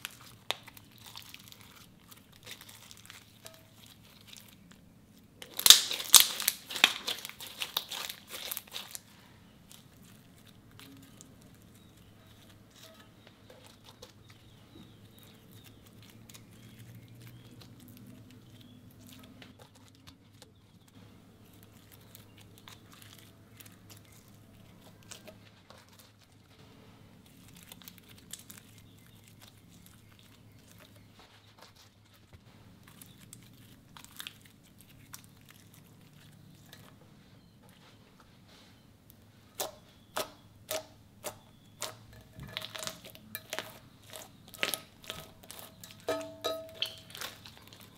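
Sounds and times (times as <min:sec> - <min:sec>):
slime sticky crackles and pops: 0:00.0 - 0:04.7, 0:05.4 - 0:09.0, 0:39.6 - 0:46.0.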